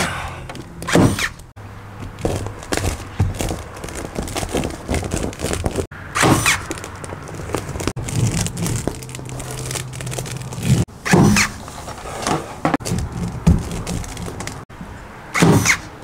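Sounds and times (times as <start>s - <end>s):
woven matting rustling and crackling: 1.9s - 14.7s.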